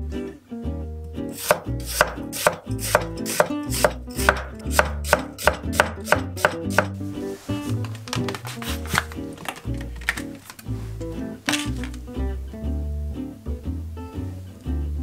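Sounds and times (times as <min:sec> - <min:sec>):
knife chopping on wooden board: 0:01.4 - 0:06.9.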